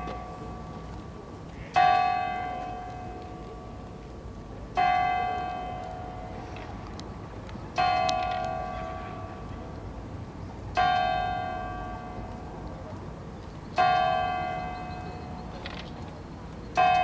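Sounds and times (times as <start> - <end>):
large church bell ringing: 0.0 - 0.9, 1.7 - 3.8, 4.7 - 6.4, 7.8 - 9.7, 10.8 - 12.5, 13.8 - 15.5, 16.7 - 17.0.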